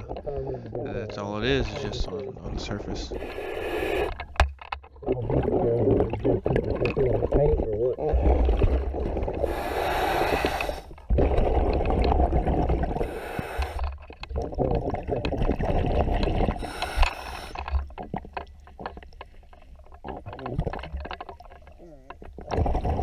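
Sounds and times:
exhaled bubbles underwater: 0:05.0 - 0:19.2, 0:19.9 - 0:23.0.

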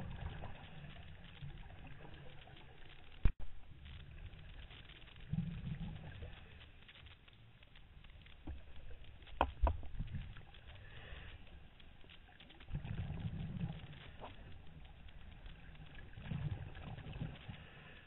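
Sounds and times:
underwater bubbles from exhaling: 0:00.0 - 0:03.3, 0:04.4 - 0:06.6, 0:12.3 - 0:18.0.

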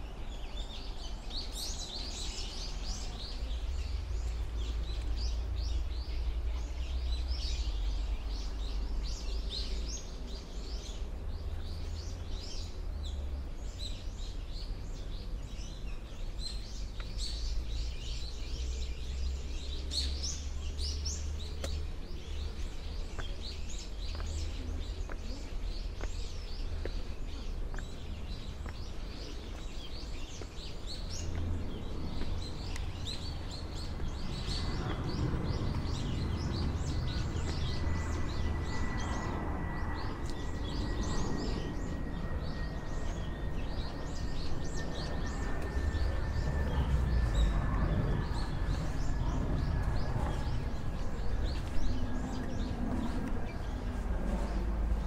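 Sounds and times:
small birds chirping: 0:00.0 - 0:55.0
steady low rumble: 0:00.0 - 0:55.0.

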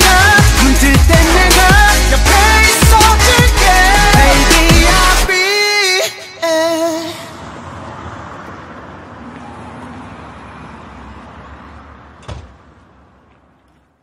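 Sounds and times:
passing cars: 0:03.8 - 0:14.0.

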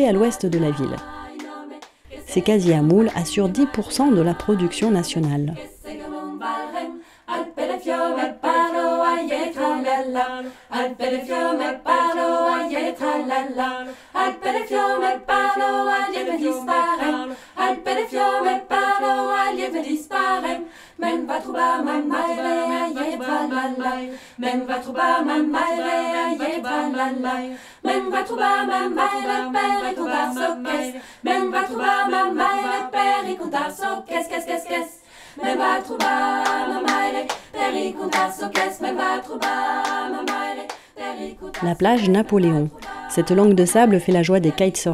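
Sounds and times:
a cappella choir singing: 0:00.0 - 0:44.9.

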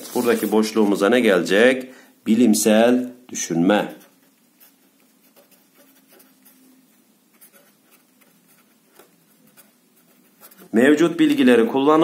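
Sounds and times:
marker scratching on paper: 0:03.8 - 0:10.8.

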